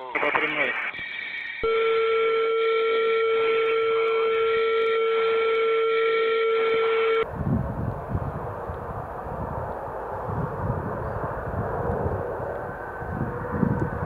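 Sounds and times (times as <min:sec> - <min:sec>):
jet engines rumbling: 0:00.0 - 0:01.7, 0:07.2 - 0:14.0
steady electronic tone: 0:00.1 - 0:02.7.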